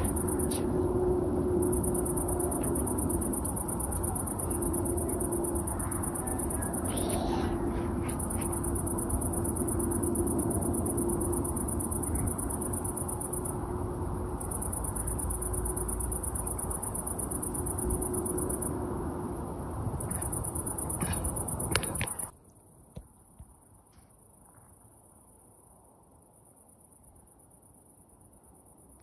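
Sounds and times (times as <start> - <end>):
distant jet engines overhead: 0.0 - 22.3
high-pitched insect trill: 0.0 - 22.4.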